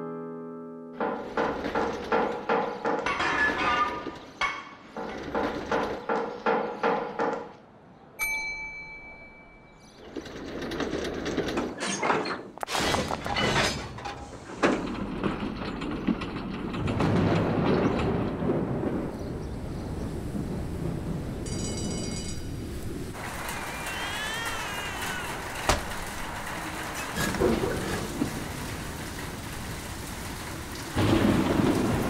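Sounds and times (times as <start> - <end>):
metal clanks: 1.0 - 7.6, 10.0 - 18.8
tram rumbling on rails: 1.0 - 7.7, 9.7 - 32.0
tram bell ding: 8.2 - 10.0, 21.4 - 22.6.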